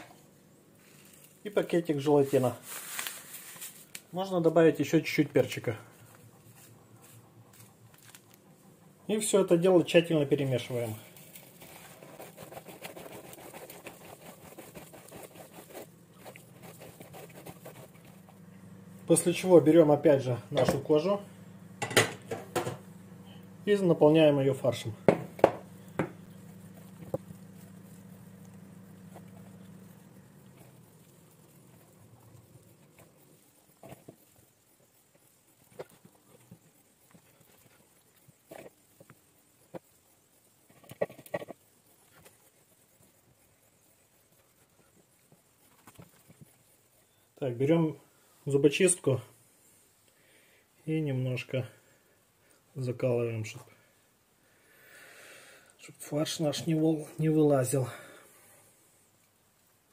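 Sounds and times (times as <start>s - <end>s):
hands kneading wet stuffing: 0.0s - 40.7s.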